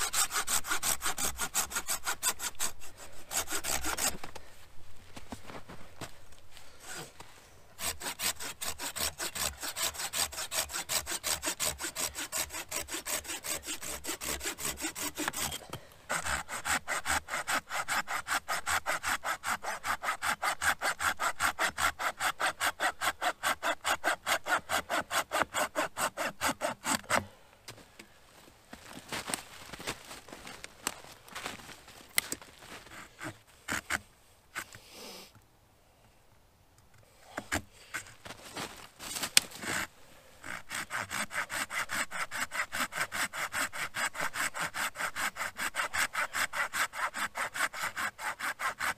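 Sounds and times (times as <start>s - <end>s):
saw cutting wood: 0.0s - 4.3s, 7.8s - 27.2s, 39.4s - 48.9s.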